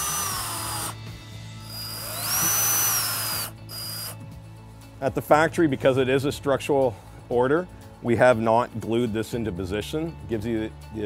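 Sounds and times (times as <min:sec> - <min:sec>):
screw gun motor whine: 0:00.0 - 0:01.0, 0:01.6 - 0:04.2.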